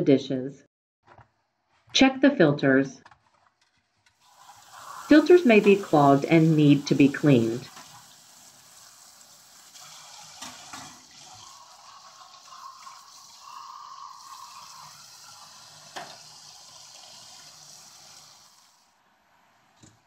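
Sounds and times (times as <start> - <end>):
tap water splashing in sink: 7.5 - 8.2, 9.7 - 11.6, 15.9 - 16.3.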